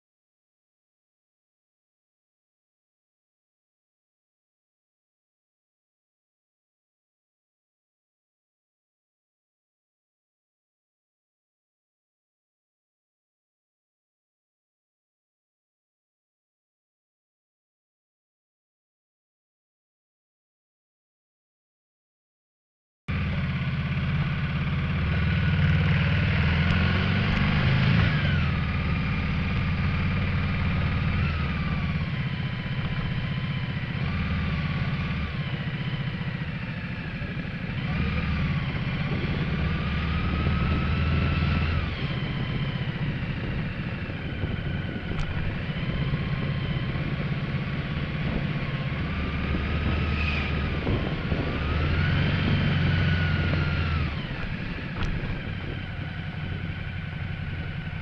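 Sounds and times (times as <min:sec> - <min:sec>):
motorcycle engine revving: 0:23.1 - 0:58.0
road noise: 0:23.1 - 0:58.0.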